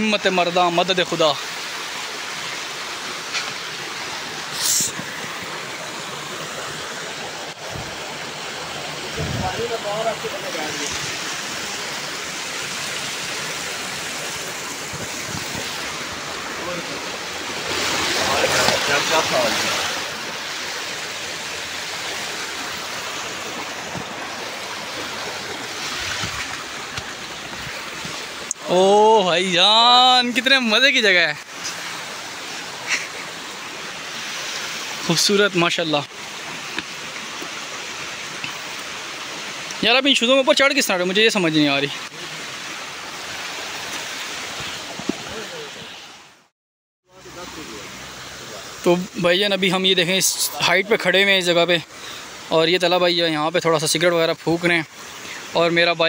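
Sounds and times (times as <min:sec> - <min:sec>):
stream rushing over rocks: 0:00.0 - 0:46.5, 0:47.1 - 0:56.0
short sharp hiss: 0:04.5 - 0:05.1.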